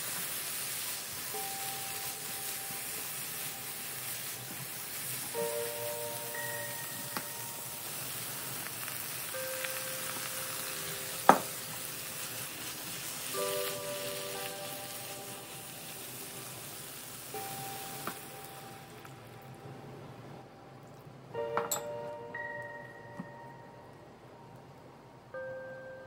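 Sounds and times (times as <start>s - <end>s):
spatula turning food: 0.0s - 18.2s
food sizzling in a frying pan: 0.0s - 19.6s
chime-like music notes: 1.2s - 3.9s, 5.2s - 8.5s, 9.3s - 11.9s, 13.3s - 16.0s, 17.3s - 19.7s, 21.3s - 26.0s.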